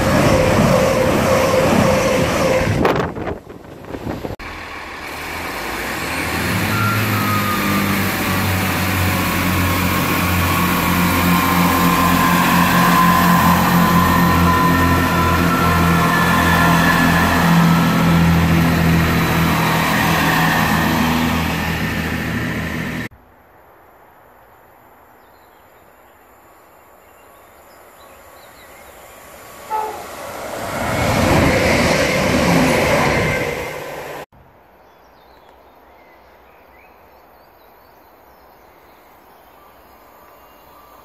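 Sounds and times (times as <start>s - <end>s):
diesel train engines humming: 0.0s - 23.1s
train rushing past: 0.0s - 23.1s, 28.9s - 34.3s
train wheels rumbling: 0.0s - 23.1s, 29.3s - 34.3s
train horn note: 6.5s - 21.5s, 29.7s - 30.2s.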